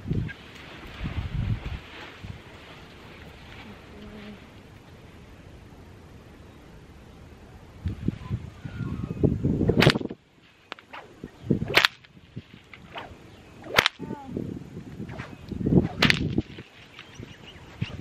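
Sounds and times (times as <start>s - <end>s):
whip cracking: 9.7s - 14.1s, 15.0s - 17.1s
whip swinging rush: 9.7s - 14.1s, 15.0s - 16.8s.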